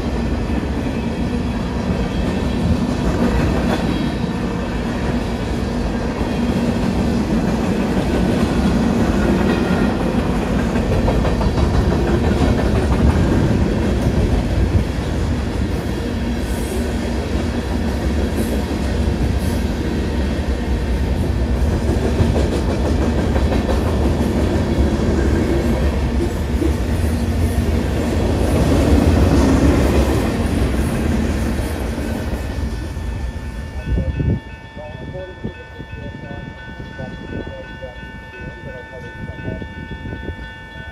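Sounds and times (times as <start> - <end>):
freight train rumbling past: 0.0 - 40.9
wheels clacking over rail joints: 7.2 - 14.8
crossing warning bell ringing: 8.7 - 11.5, 32.5 - 40.9.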